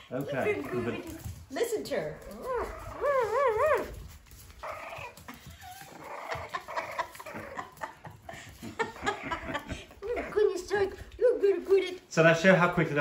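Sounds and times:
puppies yipping and squeaking: 0:02.2 - 0:07.8.

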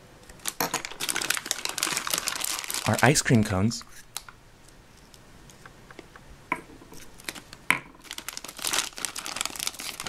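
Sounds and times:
plastic bag crinkling: 0:00.4 - 0:03.6, 0:07.1 - 0:10.0.

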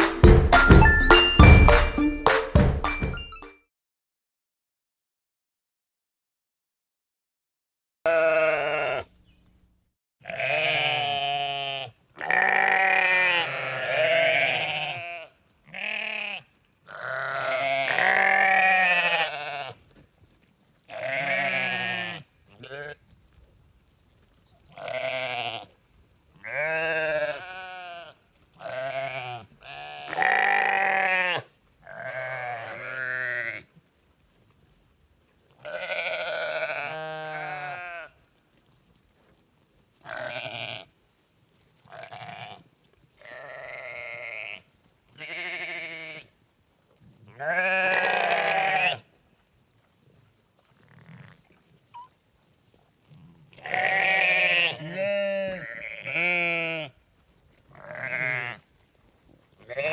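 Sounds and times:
sheep bleating: 0:08.1 - 0:09.1, 0:10.2 - 0:19.8, 0:20.9 - 0:23.0, 0:24.8 - 0:25.7, 0:26.4 - 0:33.7, 0:35.6 - 0:38.2, 0:40.0 - 0:40.9, 0:41.9 - 0:42.6, 0:43.2 - 0:44.6, 0:45.2 - 0:46.3, 0:47.3 - 0:49.1, 0:53.5 - 0:57.0, 0:57.7 - 0:58.6, 0:59.7 - 0:59.9.

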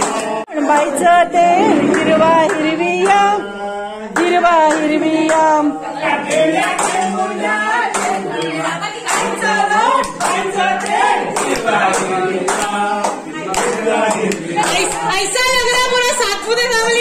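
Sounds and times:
group singing devotional song: 0:05.8 - 0:15.0.

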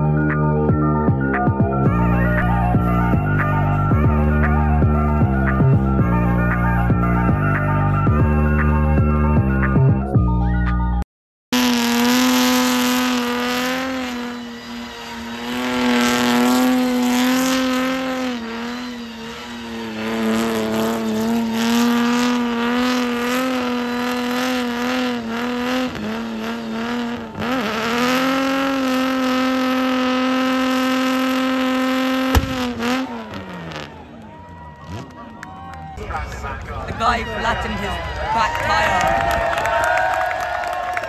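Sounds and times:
car engine at high revs: 0:11.5 - 0:36.0
spinning tyre hiss: 0:11.7 - 0:27.7.

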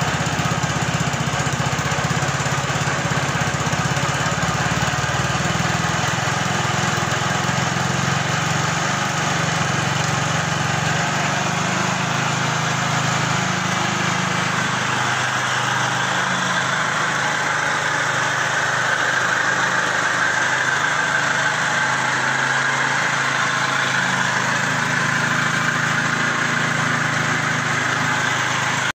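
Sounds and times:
scooter engine idling: 0:00.0 - 0:28.9.

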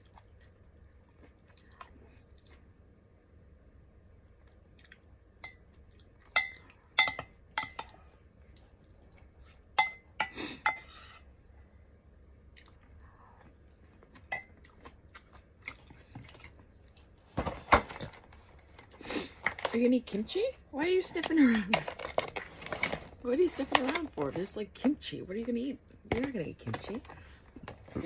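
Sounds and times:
spoon clinking on ceramic bowl: 0:09.8 - 0:10.8.

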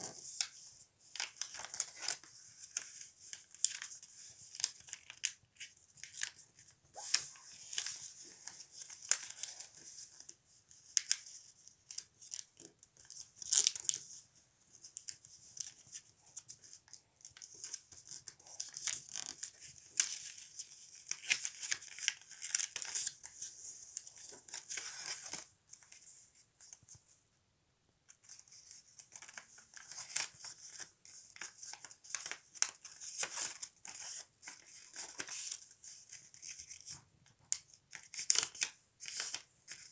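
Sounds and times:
paper folding rustles: 0:00.0 - 0:27.0, 0:28.2 - 0:39.9.

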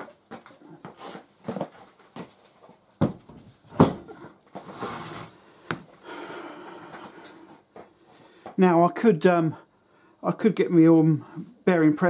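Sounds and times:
metal rubbing and sliding: 0:04.6 - 0:05.4.

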